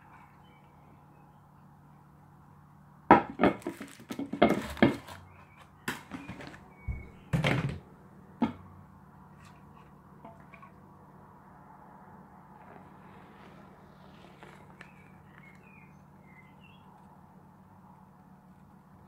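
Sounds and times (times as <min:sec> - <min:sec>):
aluminium foil crinkling: 0:03.6 - 0:05.2.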